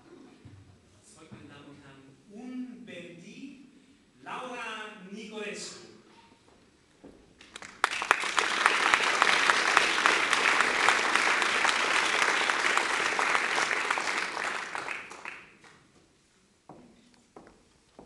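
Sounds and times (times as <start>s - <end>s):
audience applauding: 7.4s - 15.8s.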